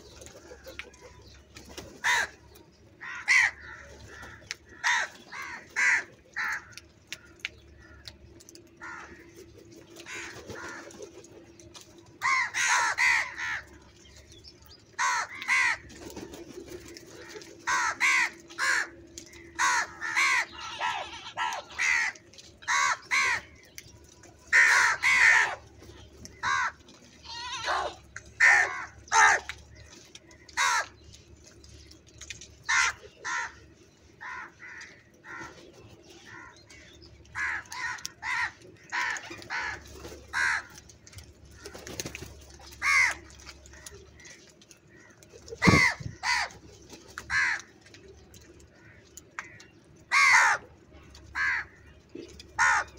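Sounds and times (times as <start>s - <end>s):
crows cawing: 2.0s - 9.4s, 10.0s - 10.9s, 12.2s - 13.7s, 15.0s - 15.9s, 16.9s - 23.7s, 24.5s - 25.6s, 26.3s - 31.0s, 32.6s - 33.6s, 34.2s - 35.6s, 36.2s - 46.6s, 47.2s - 47.8s, 48.7s - 50.7s, 51.3s - 52.9s.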